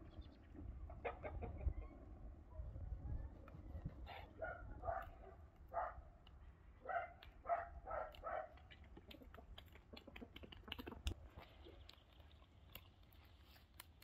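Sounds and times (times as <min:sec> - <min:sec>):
dog barking: 0:04.1 - 0:06.0, 0:06.8 - 0:08.6.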